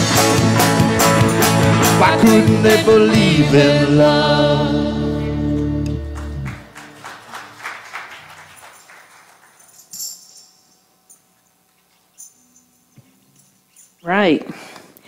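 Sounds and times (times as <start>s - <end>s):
tambourine jingling: 8.5s - 14.2s.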